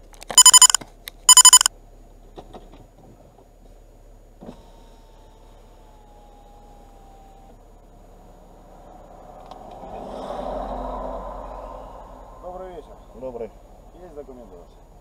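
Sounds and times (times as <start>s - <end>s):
rapid electronic beeping: 0.3s - 1.7s.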